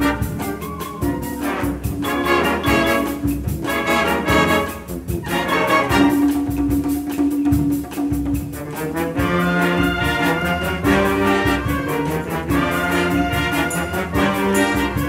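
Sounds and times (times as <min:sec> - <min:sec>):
wind band playing chords: 0:00.0 - 0:06.9, 0:08.3 - 0:15.0.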